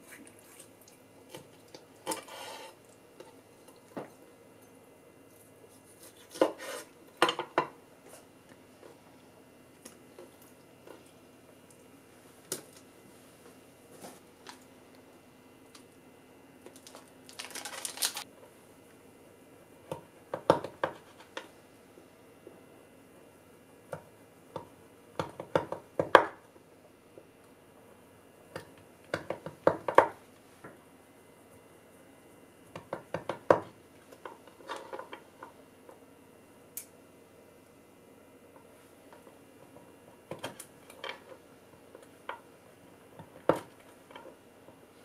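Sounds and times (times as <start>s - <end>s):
plastic wrapping crinkling: 16.6s - 18.3s.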